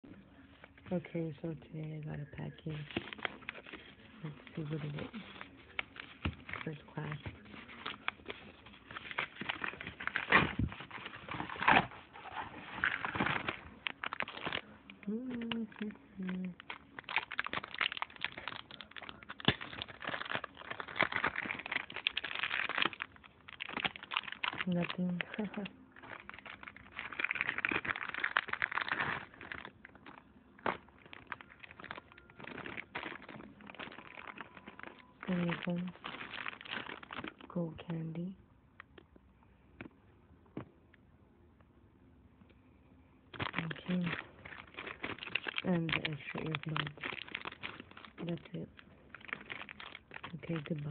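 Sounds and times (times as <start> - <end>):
paper mailer crinkling: 2.4 - 38.0, 43.3 - 50.9
paper ripping: 2.7 - 37.4.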